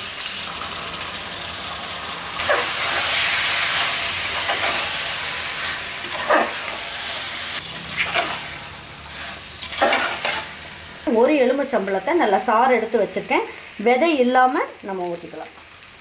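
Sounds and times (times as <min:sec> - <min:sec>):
rice sizzling in hot oil: 0:00.0 - 0:16.0
ladle stirring and scraping: 0:07.8 - 0:10.6.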